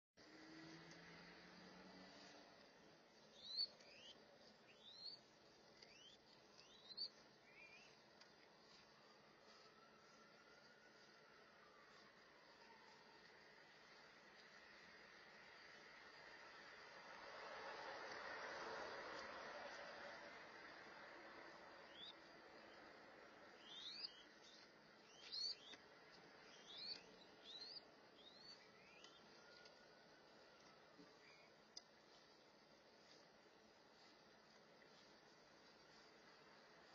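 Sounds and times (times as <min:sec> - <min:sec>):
dove chicks high rising calls: 0:03.3 - 0:08.0, 0:21.5 - 0:29.8.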